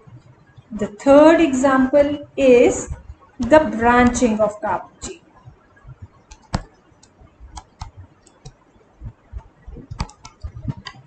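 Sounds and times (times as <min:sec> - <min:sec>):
stylus tapping on tablet: 0:05.9 - 0:11.0.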